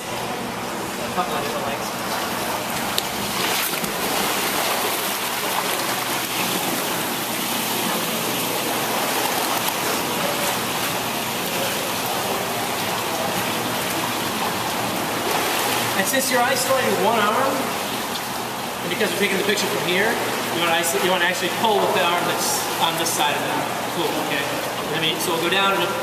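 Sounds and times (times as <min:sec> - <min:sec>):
water splashing in pool: 0:00.0 - 0:26.0
person jumping into pool: 0:02.1 - 0:10.1.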